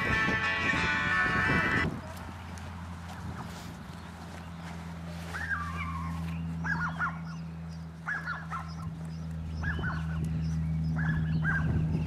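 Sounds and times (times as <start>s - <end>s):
birds honking: 0.0s - 1.9s, 4.5s - 8.9s, 9.5s - 12.0s
steady low hum: 0.0s - 12.0s.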